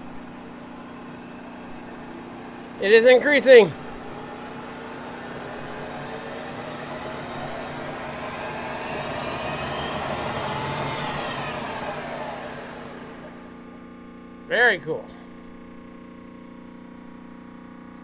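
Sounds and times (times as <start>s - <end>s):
milling machine motor whine: 0.0s - 13.8s
steady hum: 0.0s - 13.9s.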